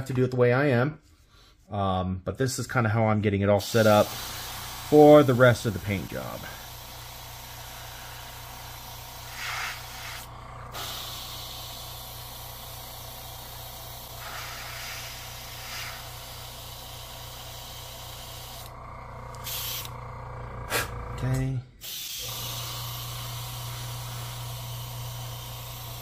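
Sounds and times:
airbrush hissing: 3.6 - 20.0, 21.8 - 26.0
steady low hum: 3.6 - 26.0.

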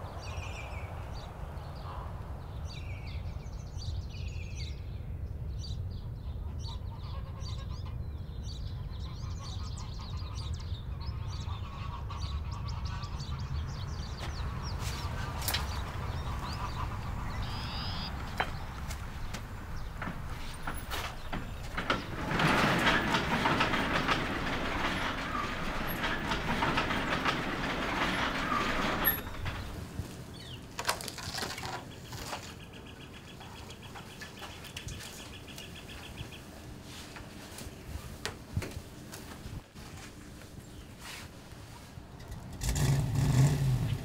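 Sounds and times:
garage door rumbling and rattling: 10.3 - 36.8, 42.0 - 44.0.

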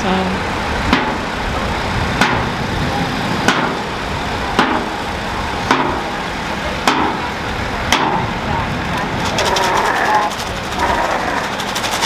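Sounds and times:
sharp knock: 2.2 - 2.5, 3.5 - 3.7
wagon rolling rumble: 6.5 - 12.0.

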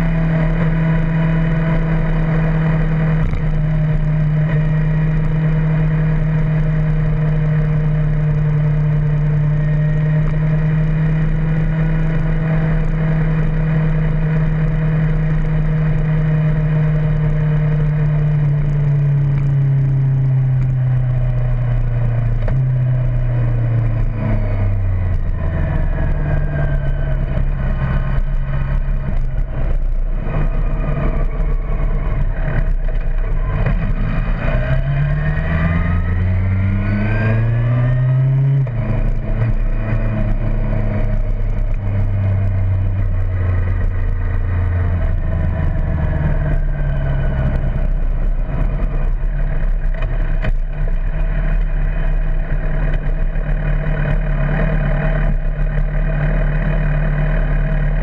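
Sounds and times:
motorcycle engine running: 0.0 - 58.0
wind noise: 18.2 - 52.3.

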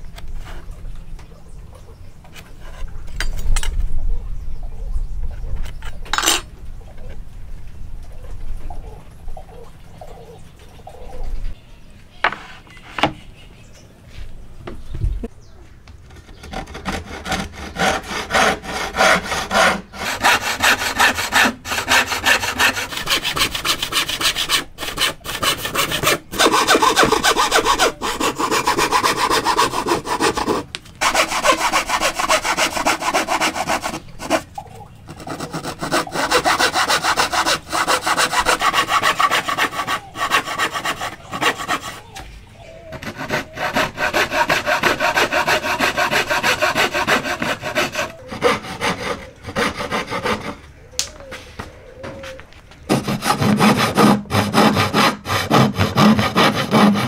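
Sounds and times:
hand saw rasping: 16.4 - 34.5, 35.1 - 42.0, 42.9 - 50.6, 52.9 - 57.0.

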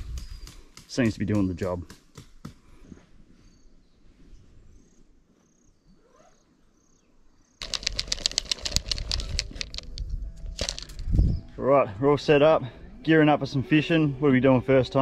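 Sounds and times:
plastic tub crackling: 7.6 - 11.0.

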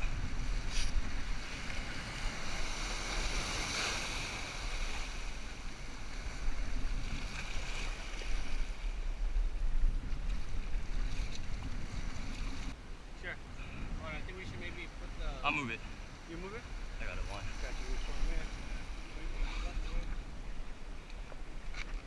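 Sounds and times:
wind rumbling on microphone: 0.0 - 22.0
small waves washing over rocks: 0.6 - 9.0.

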